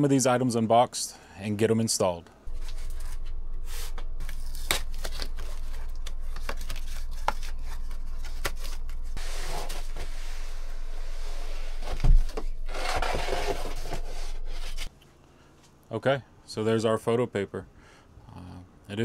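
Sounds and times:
paper roll rustling and scraping: 0:02.5 - 0:14.9.

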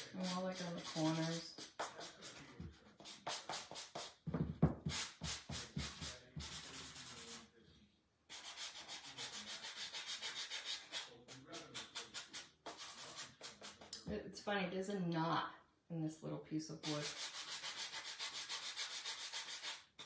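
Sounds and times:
sanding block scraping wood: 0:00.0 - 0:04.2, 0:08.3 - 0:13.9, 0:16.8 - 0:19.9.

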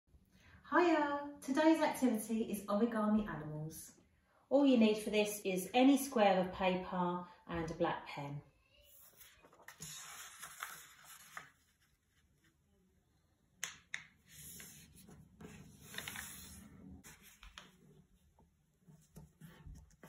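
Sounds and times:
paper rustling and folding: 0:08.8 - 0:12.6, 0:14.2 - 0:20.0
paper crinkle: 0:08.9 - 0:12.6, 0:14.3 - 0:17.8.

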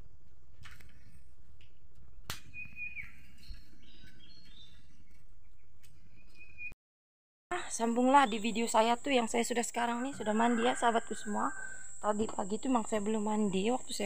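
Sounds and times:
steady low background hum: 0:07.5 - 0:14.0.

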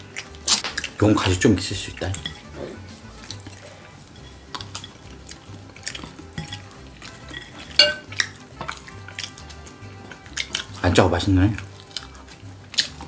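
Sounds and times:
chopsticks and spoon clinking bowls: 0:00.0 - 0:13.0.

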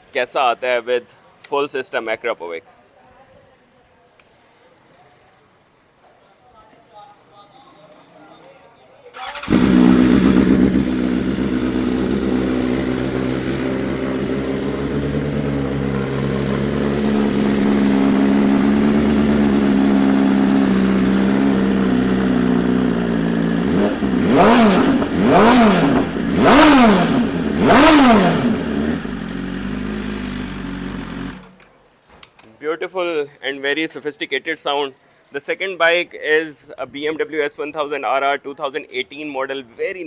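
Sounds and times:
motorcycle engine revving: 0:09.2 - 0:31.6.

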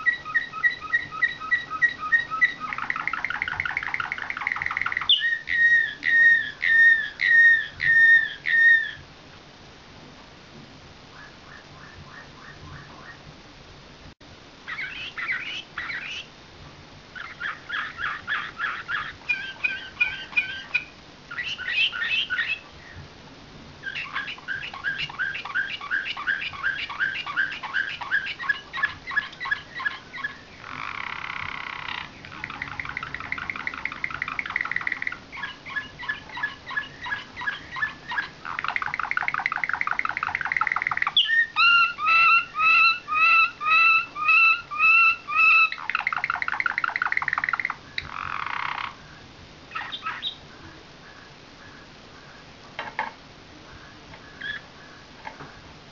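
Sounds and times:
canary repeated notes: 0:00.0 - 0:09.0, 0:23.8 - 0:48.9
canary singing trills: 0:00.0 - 0:09.0, 0:11.1 - 0:13.2, 0:14.7 - 0:16.3, 0:17.2 - 0:23.0, 0:23.8 - 0:52.5, 0:53.7 - 0:55.7.

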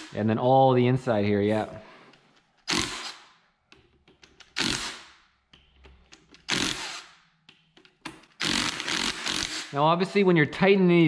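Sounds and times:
power tool spinning bolts: 0:02.7 - 0:03.2, 0:04.4 - 0:05.1, 0:06.4 - 0:07.2, 0:08.2 - 0:09.8.

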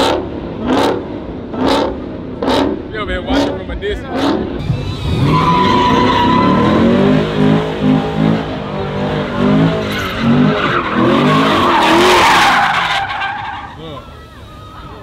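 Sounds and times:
car engine revving: 0:00.0 - 0:13.8
tyres squealing: 0:04.6 - 0:07.1, 0:09.6 - 0:15.0.

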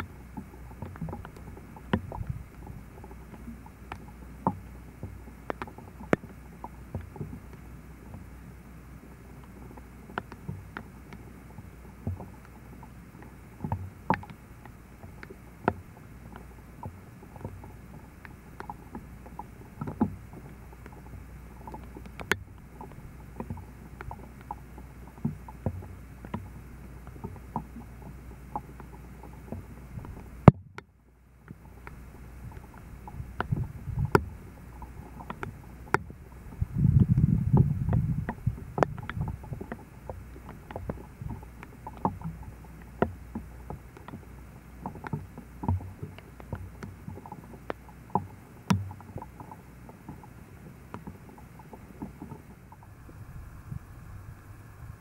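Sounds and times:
ripples lapping on shore: 0:00.0 - 0:55.0
low rumble: 0:52.6 - 0:55.0.

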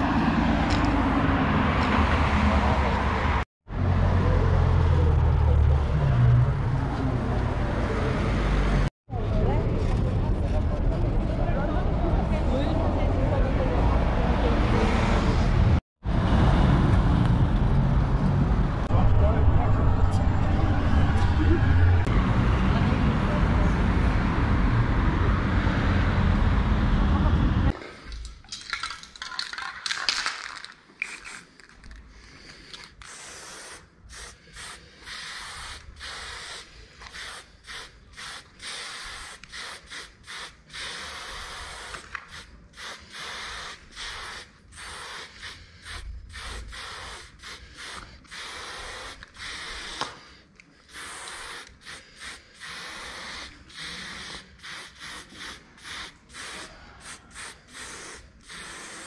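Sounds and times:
aerosol spray can hissing: 0:33.0 - 0:59.0.

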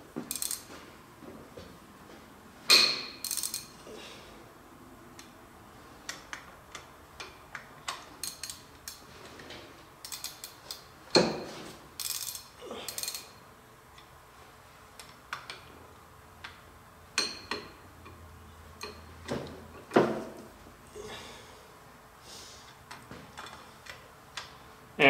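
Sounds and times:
ratchet wrench clicking: 0:00.3 - 0:00.6, 0:03.2 - 0:03.7, 0:08.2 - 0:09.0, 0:10.0 - 0:10.8, 0:12.0 - 0:13.4.

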